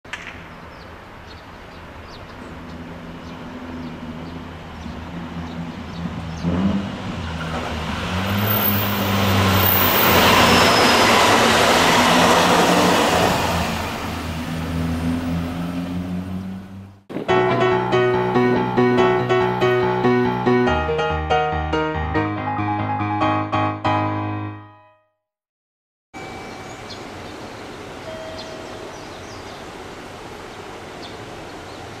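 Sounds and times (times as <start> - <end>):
electric train passing: 1.9 - 20.9, 26.2 - 31.5.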